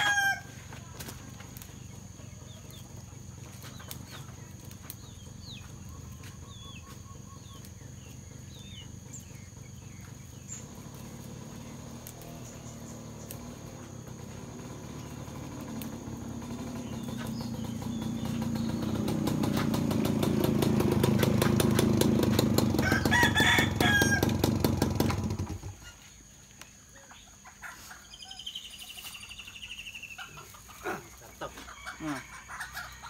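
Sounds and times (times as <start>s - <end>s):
chickens clucking: 0.1s - 24.2s, 25.1s - 33.0s
small motorcycle engine: 8.0s - 25.9s.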